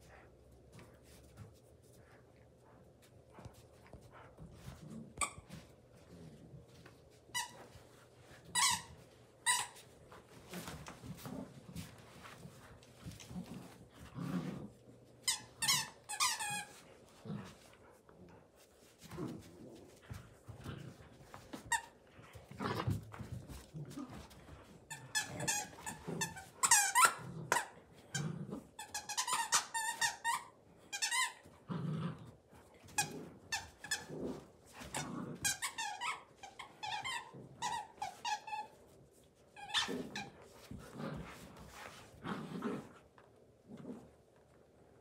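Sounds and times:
dogs growling playfully: 3.3s - 6.8s, 10.1s - 15.3s, 16.4s - 29.0s, 31.4s - 36.1s, 39.6s - 44.4s.

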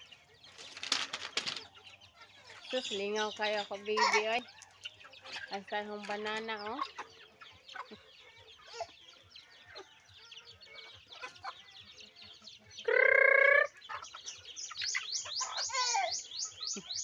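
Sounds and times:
chicks clucking and cheeping: 0.0s - 17.0s
loud chicken cry: 6.6s - 17.0s
high-pitched peeps: 10.4s - 17.0s.

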